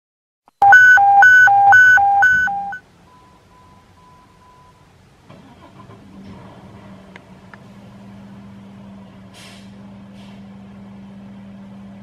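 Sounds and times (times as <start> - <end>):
electronic two-tone alert: 0.6 - 2.8
faint steady tone: 0.6 - 5.0.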